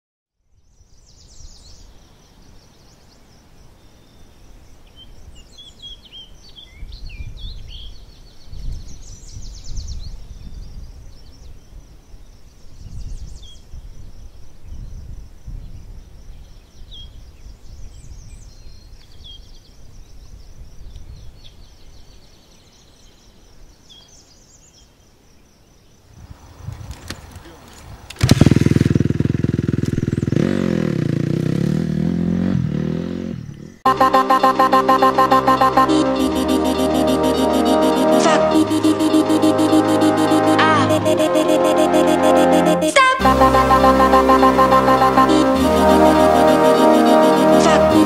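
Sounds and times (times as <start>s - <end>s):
wind rumbling on microphone: 12.7s - 16.4s, 26.1s - 28.4s.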